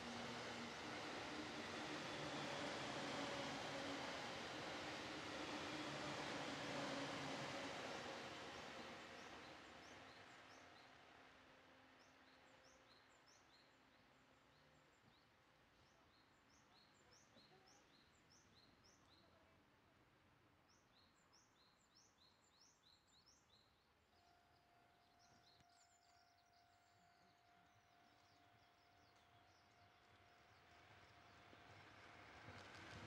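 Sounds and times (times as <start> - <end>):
electric train hum: 0.0 - 12.8, 24.2 - 33.0.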